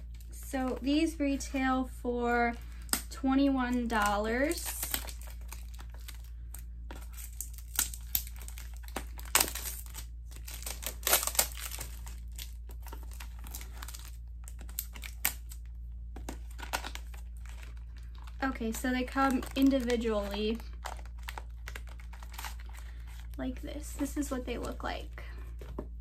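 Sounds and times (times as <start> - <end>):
cardboard packaging crinkling: 3.5 - 25.0.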